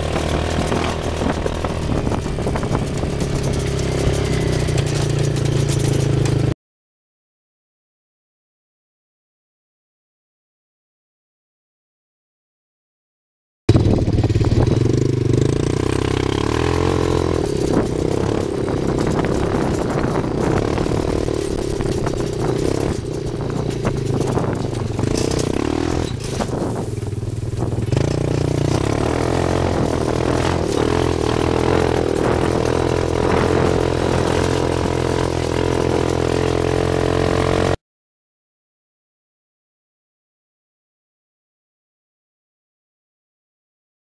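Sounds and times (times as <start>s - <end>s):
buggy engine exhaust: 0.0s - 6.6s, 13.7s - 37.8s
chassis clattering: 17.2s - 35.0s.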